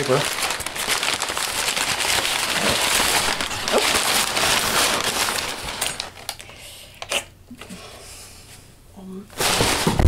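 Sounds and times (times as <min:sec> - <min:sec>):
packing paper crinkling: 0:00.0 - 0:06.5.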